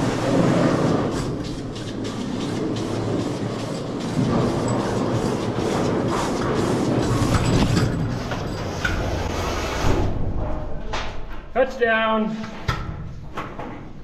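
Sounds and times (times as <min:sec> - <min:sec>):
rope and pulley hoist rattling: 0:00.0 - 0:09.3.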